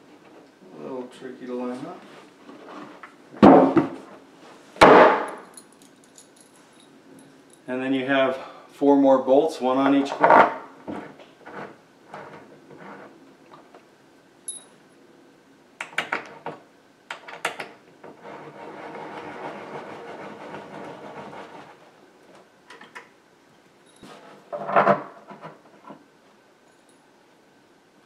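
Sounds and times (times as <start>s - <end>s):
loud knock: 3.4s - 4.0s, 4.8s - 5.4s
clinks of allen key and bolt: 14.5s - 14.8s.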